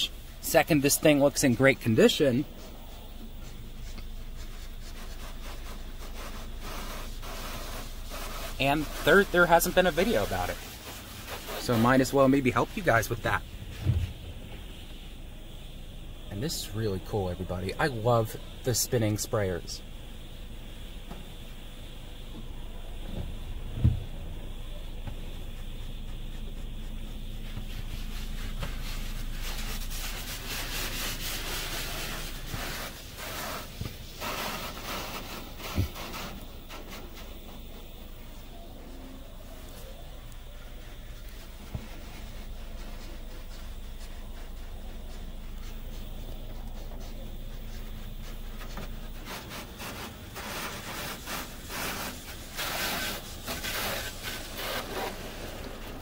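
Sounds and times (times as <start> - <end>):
water spray hitting car: 0.0 - 20.2, 23.0 - 56.0
steady low hum: 0.0 - 56.0
thump: 13.7 - 14.9, 23.1 - 24.4.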